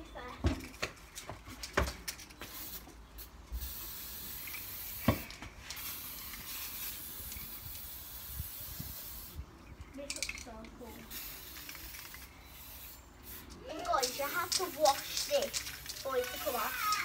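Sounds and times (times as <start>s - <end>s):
aerosol can spraying: 3.6s - 9.4s, 11.0s - 17.0s.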